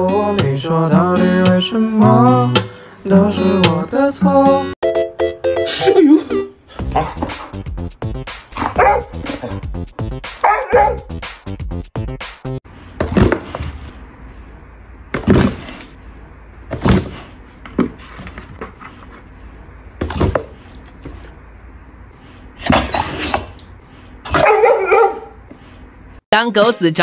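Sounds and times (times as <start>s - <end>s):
dog barking: 6.9s - 7.6s, 8.6s - 9.6s, 10.4s - 11.1s, 24.3s - 25.4s.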